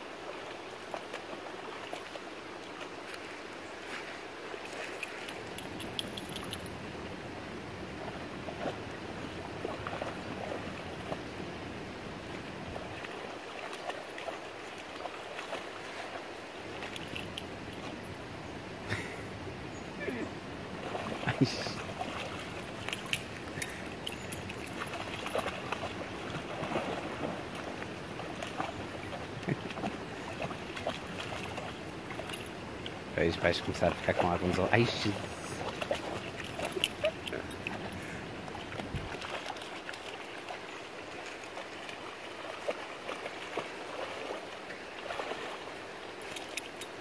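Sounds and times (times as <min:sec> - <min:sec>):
puppy splashing in water: 0:00.3 - 0:03.4, 0:07.9 - 0:18.0, 0:20.7 - 0:47.0.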